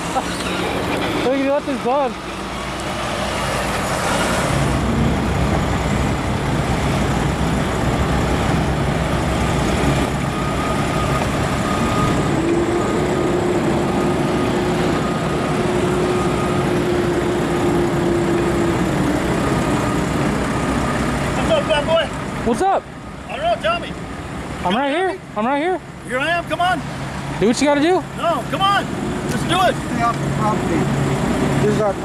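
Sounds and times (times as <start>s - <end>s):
steady tone: 0.0s - 24.5s
truck diesel engine rumbling: 0.0s - 32.0s.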